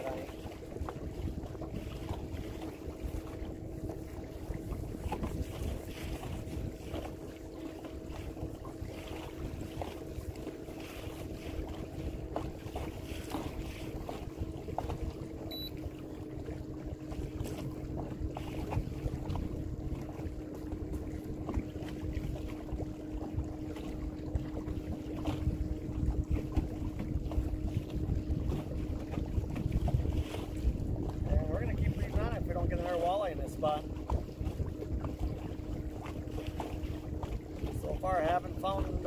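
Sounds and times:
wind noise on microphone: 0.0s - 15.7s, 16.4s - 39.0s
steady low hum: 14.6s - 21.8s.

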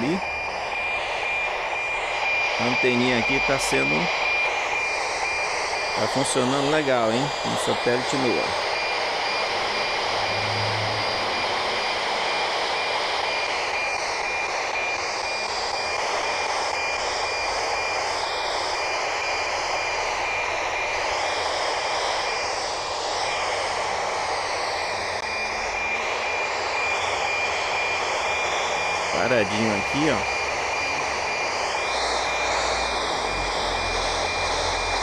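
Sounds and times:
radio static hiss: 0.0s - 0.2s, 1.0s - 35.0s
fainter higher whistle: 0.0s - 16.0s, 24.8s - 35.0s.

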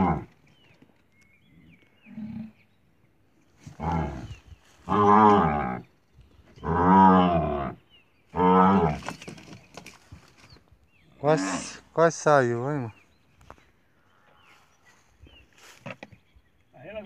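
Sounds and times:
young cow bellowing: 0.0s - 0.3s, 3.7s - 5.8s, 6.6s - 9.0s.

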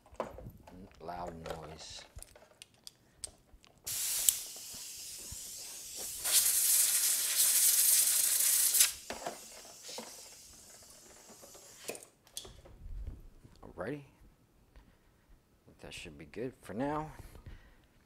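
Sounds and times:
compressed air hissing: 3.9s - 12.0s.

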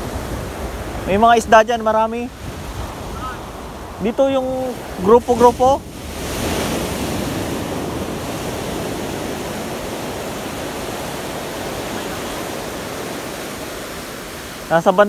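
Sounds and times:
ocean surf on a beach: 0.0s - 15.0s.

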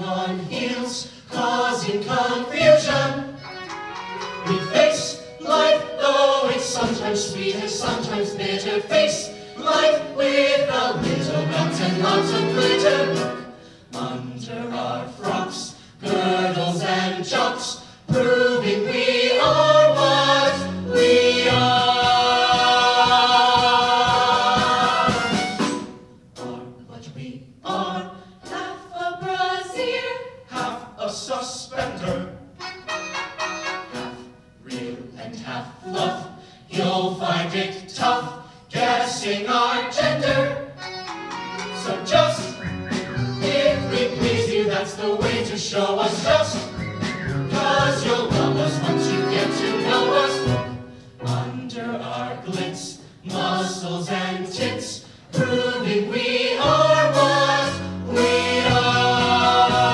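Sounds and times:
vocal ensemble singing in harmony: 0.0s - 32.6s, 33.4s - 59.9s.

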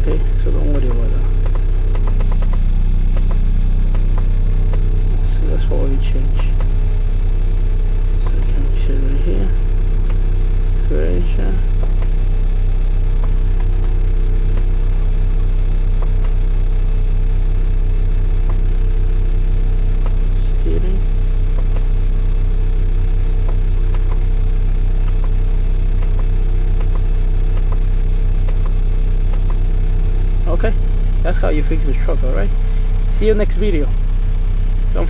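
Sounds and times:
diesel engine idling: 0.0s - 35.0s
faint clicks: 1.3s - 4.9s, 25.0s - 29.6s.

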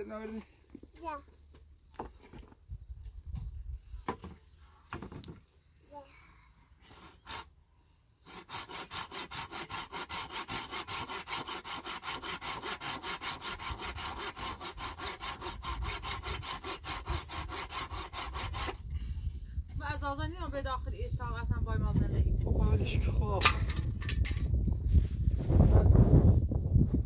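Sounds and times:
hand saw cutting wood: 6.8s - 7.5s, 8.2s - 18.9s.

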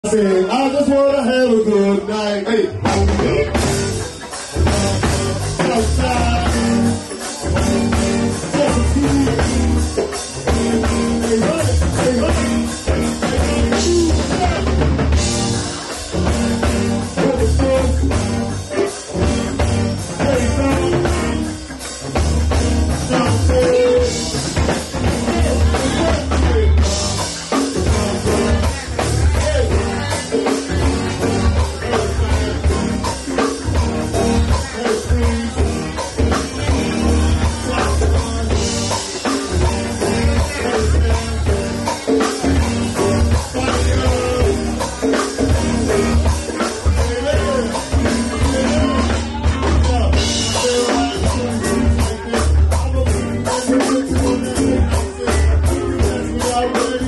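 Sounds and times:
drum kit with cymbals: 0.0s - 57.0s
electric guitar: 0.0s - 57.0s
heavy low notes: 0.0s - 57.0s
people singing into microphones: 0.1s - 22.0s, 22.9s - 57.0s.

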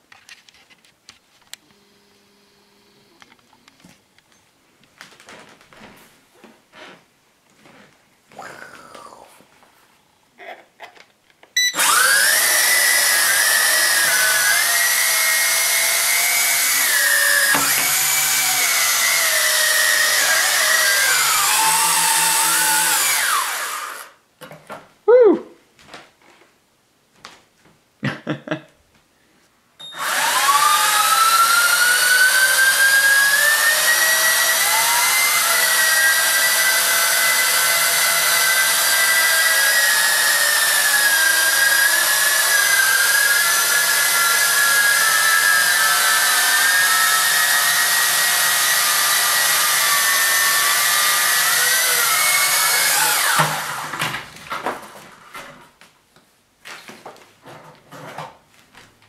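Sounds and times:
quadcopter motors whining: 11.7s - 24.2s, 29.9s - 53.9s.

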